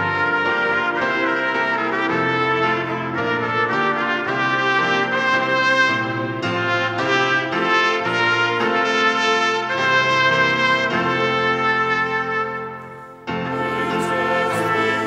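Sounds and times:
brassy held chords: 0.0 - 15.0.

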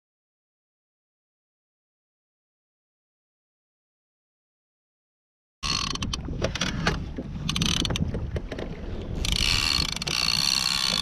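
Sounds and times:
fishing reel clicking and buzzing: 5.6 - 6.7, 7.4 - 8.0, 9.2 - 11.0
wind on microphone: 5.6 - 11.0.

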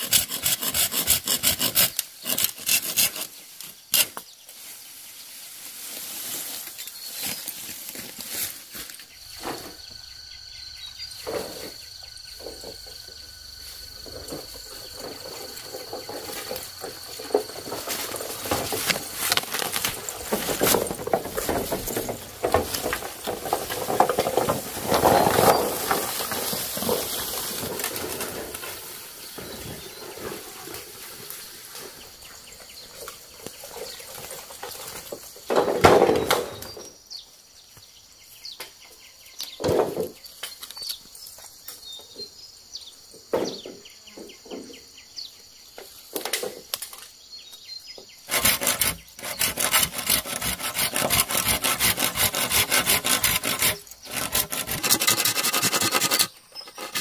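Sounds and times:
bamboo leaves rustling: 2.0 - 10.0, 11.0 - 36.7, 48.3 - 57.0
bamboo poles knocking and clicking: 14.1 - 28.7, 45.8 - 47.1.

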